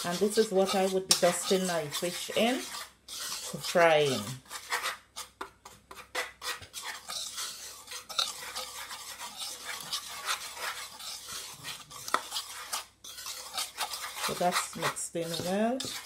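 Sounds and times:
flour stirred in wooden bowl: 0.0 - 16.0.

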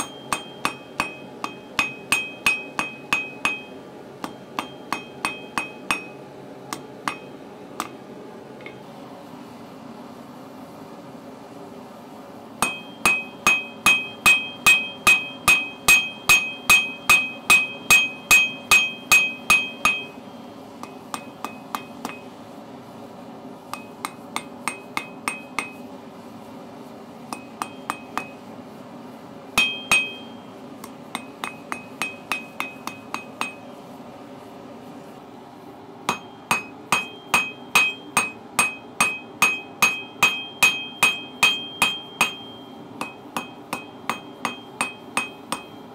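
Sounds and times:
anvil ringing: 0.0 - 6.2, 12.6 - 20.2, 27.4 - 28.4, 29.6 - 30.4, 31.2 - 33.8, 36.1 - 45.8
hammer striking steel: 0.0 - 8.0, 12.6 - 22.3, 23.7 - 25.8, 27.3 - 28.4, 29.6 - 33.8, 36.1 - 45.9.

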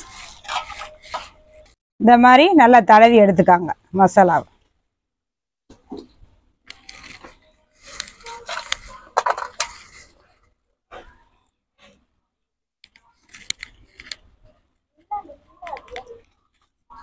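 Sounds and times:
steel dishes clinking and scraping: 7.8 - 10.1.

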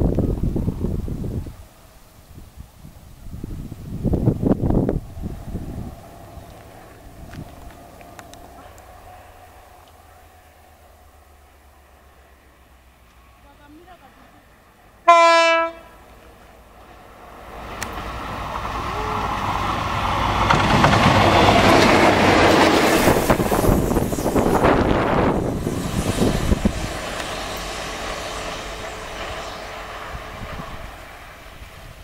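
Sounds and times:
locomotive engine passing: 3.2 - 32.0
locomotive horn blast: 15.0 - 16.1
wheel clatter over rails: 19.6 - 25.7.

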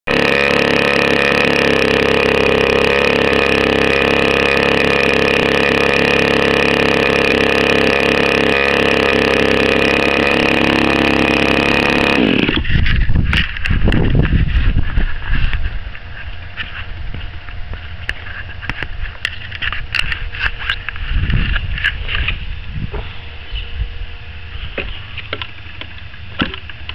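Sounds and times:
engine spinning down: 0.1 - 12.8
model aircraft engine running: 0.1 - 22.4.

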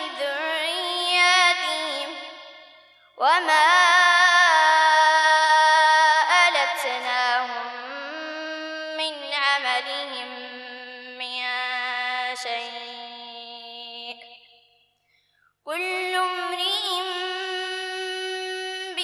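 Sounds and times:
boy chanting melodically: 0.0 - 2.6, 3.2 - 14.4, 15.7 - 19.0.

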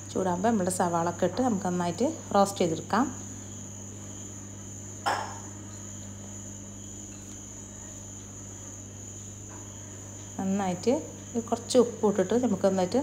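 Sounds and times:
single knock: 5.0 - 5.4.

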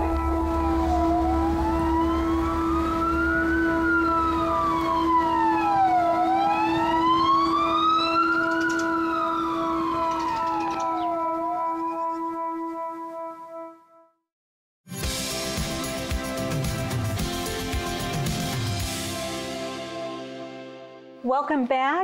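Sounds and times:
siren wailing: 0.0 - 13.8.

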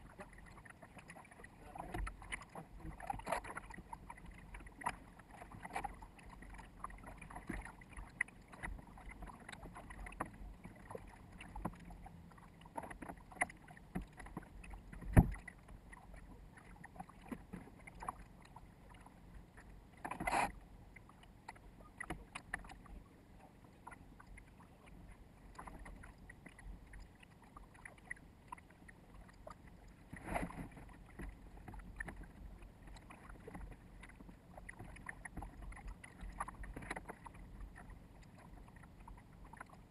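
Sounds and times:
water rushing along boat hull: 0.0 - 39.9
small knocks and clicks: 12.7 - 16.0.

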